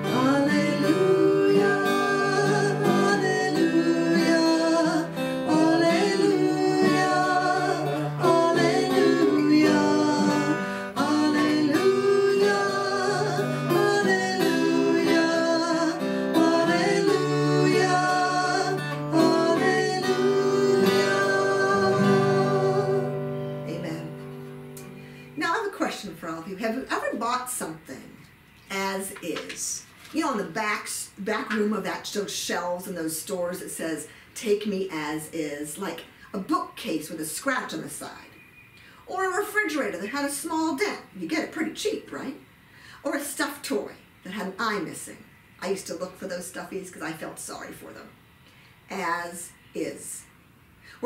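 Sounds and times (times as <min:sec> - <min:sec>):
woman singing: 0:00.0 - 0:24.2
acoustic guitar: 0:00.0 - 0:43.5.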